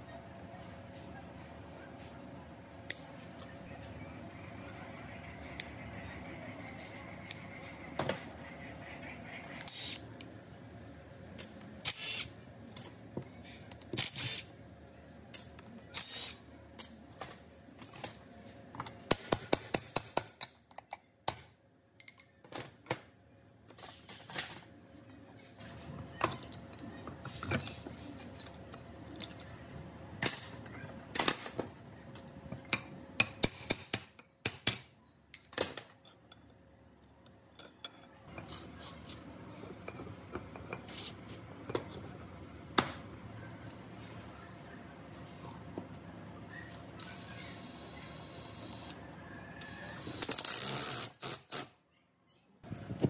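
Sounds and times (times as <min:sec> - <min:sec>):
metal tools clinking and knocking: 0:22.0 - 0:22.5, 0:37.2 - 0:38.4.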